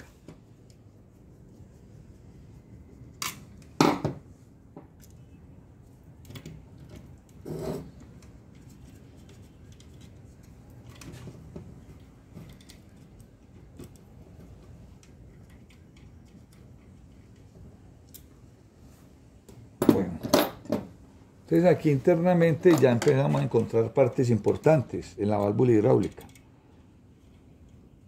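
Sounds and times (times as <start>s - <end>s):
small metal clicks and scraping: 6.1s - 18.4s, 22.6s - 28.0s.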